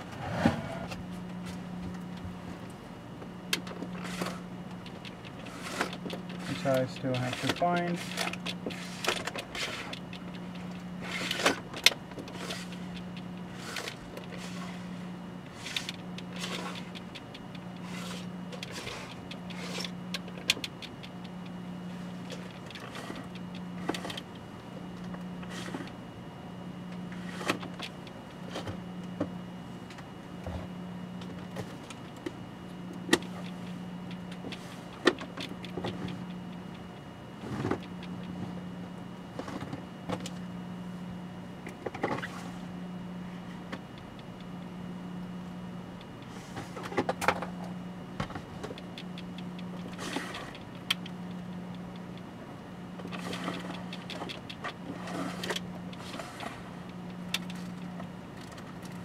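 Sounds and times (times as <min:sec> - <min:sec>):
pulsing low hum: 0:00.0 - 0:59.0
small parts clicking and rustling: 0:03.5 - 0:14.6, 0:53.0 - 0:59.0.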